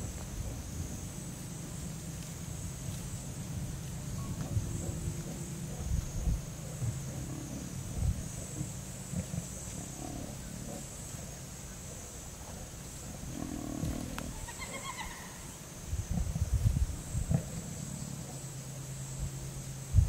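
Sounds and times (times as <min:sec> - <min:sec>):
lioness growling: 0:04.4 - 0:11.5, 0:12.4 - 0:14.4.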